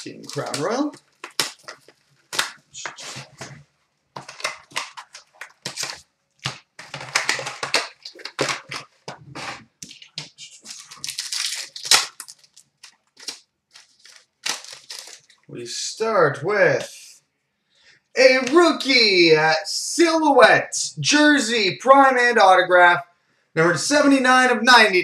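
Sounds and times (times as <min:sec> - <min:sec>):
foil wrappers crinkling and tearing: 0:00.0 - 0:03.5, 0:04.2 - 0:15.5.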